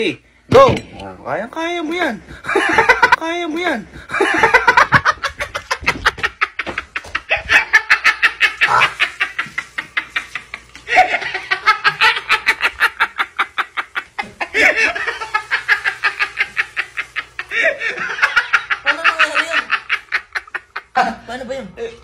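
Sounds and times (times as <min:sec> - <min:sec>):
hard breathy laughter: 0:03.9 - 0:21.2.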